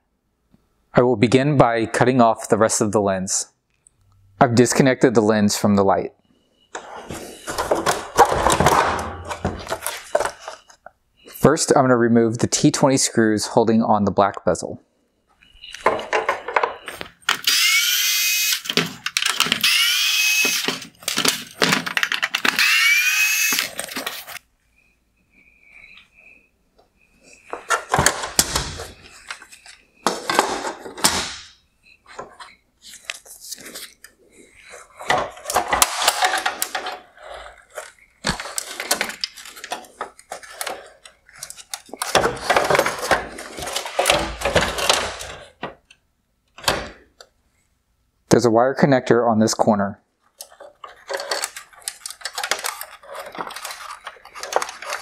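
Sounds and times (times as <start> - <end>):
electric screwdriver motor whining: 17.4 - 18.7, 19.6 - 20.8, 22.5 - 23.8
plastic trim cracking and clicking: 50.4 - 55.0.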